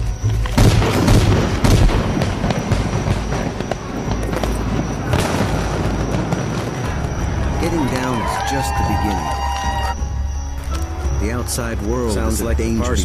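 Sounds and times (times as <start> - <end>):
crackling noise: 0.0 - 13.0
booming percussion hits: 0.4 - 10.4.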